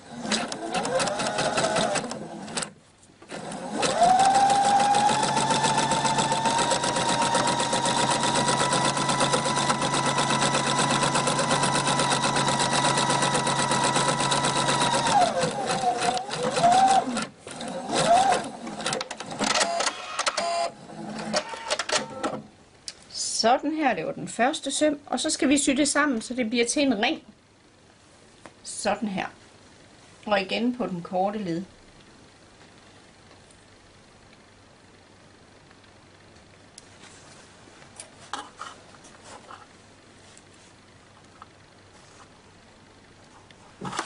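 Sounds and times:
sewing machine motor whine: 0.1s - 2.7s, 3.3s - 22.4s.

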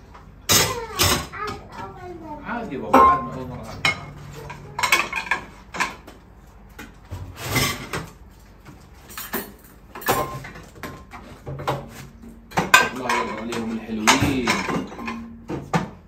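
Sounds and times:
plates and cutlery clinking: 2.9s - 6.2s, 7.4s - 8.2s, 9.0s - 15.9s.

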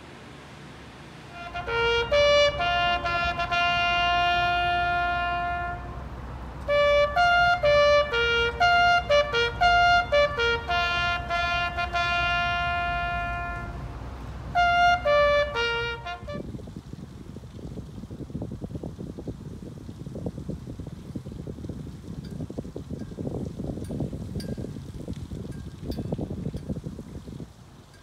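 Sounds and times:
solo bugle call: 1.3s - 16.5s.

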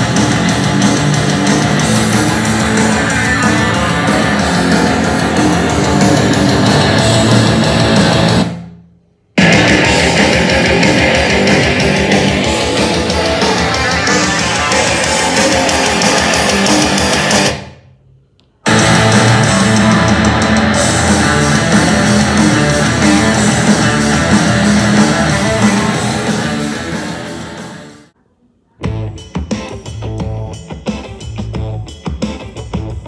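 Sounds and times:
rock music through speakers: 0.0s - 8.7s, 9.4s - 17.7s, 18.7s - 28.1s, 28.8s - 33.0s.

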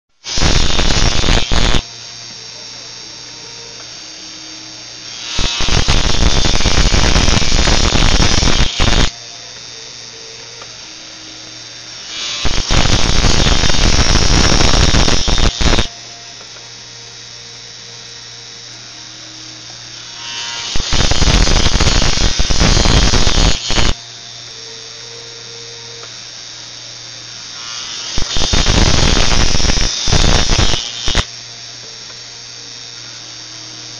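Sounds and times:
drill cutting into paper: 0.2s - 3.0s, 3.7s - 9.8s, 10.5s - 16.5s, 19.3s - 24.0s, 27.4s - 31.4s
electric drill motor humming: 0.2s - 33.9s.

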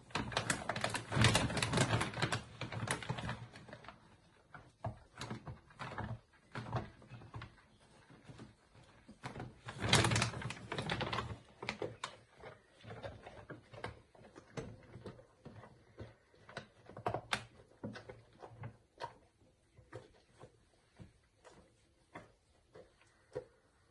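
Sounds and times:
plastic bag rustling: 0.0s - 4.0s, 8.1s - 15.7s
dog crunching kibble: 0.0s - 23.9s.

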